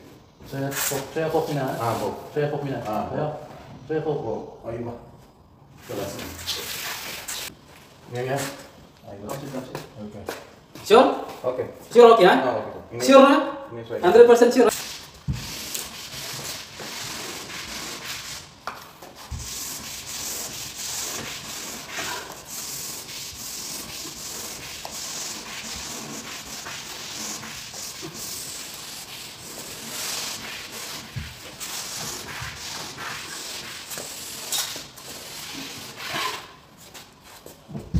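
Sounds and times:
tool rubbing over vinyl wallpaper: 14.7s - 36.6s.

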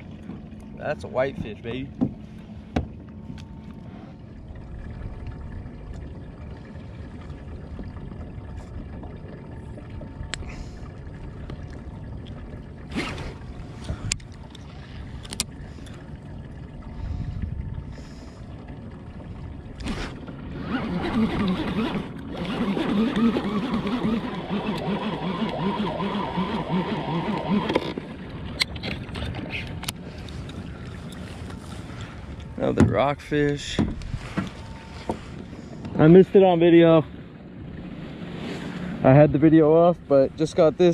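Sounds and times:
water noise around a kayak: 0.0s - 40.9s
wind: 0.0s - 40.9s
fishing reel whirring: 19.9s - 28.1s.

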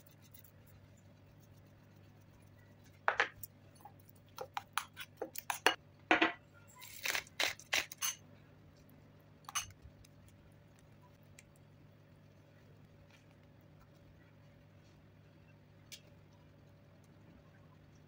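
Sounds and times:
metal spoon clinking in ceramic bowl: 9.5s - 9.7s.

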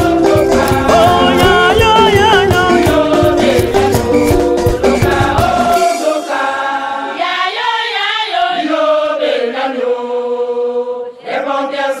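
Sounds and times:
drums and backing music: 0.0s - 6.4s
group singing chant a cappella: 0.0s - 12.0s.

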